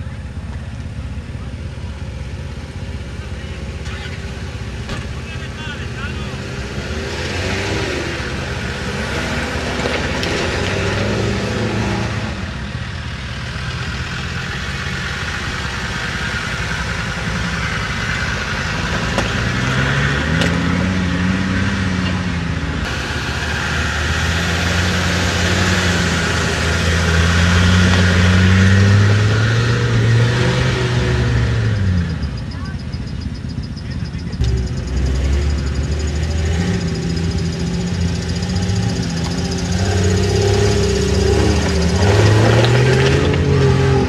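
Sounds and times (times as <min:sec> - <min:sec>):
off-road engines revving: 0:00.0 - 0:44.0.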